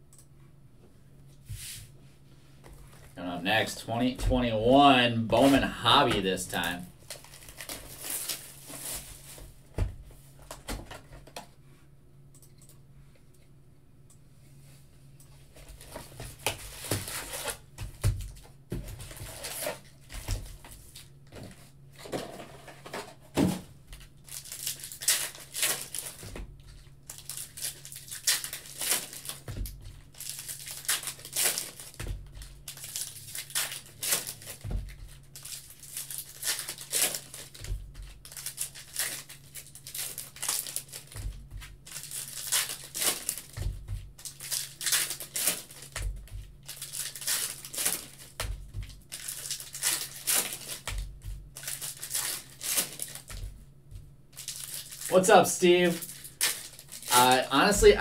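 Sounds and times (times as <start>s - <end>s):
foil wrappers tearing and crinkling: 4.8s - 9.4s, 15.6s - 17.6s, 18.2s - 21.1s, 23.9s - 53.5s, 54.3s - 58.0s.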